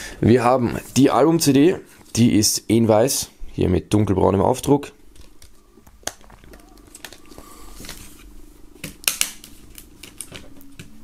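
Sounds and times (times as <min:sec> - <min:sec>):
plastic clicks of cd case: 0:05.2 - 0:08.0, 0:08.8 - 0:10.9.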